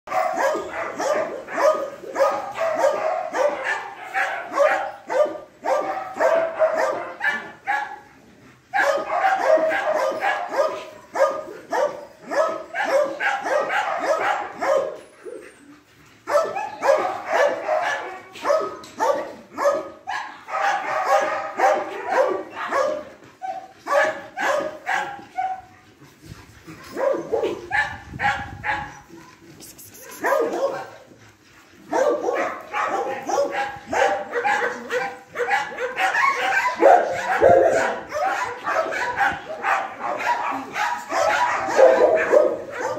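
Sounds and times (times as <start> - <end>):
dogs barking: 0.1 - 8.1, 8.7 - 15.0, 16.2 - 25.7, 26.8 - 29.1, 30.0 - 31.2, 31.8 - 42.9.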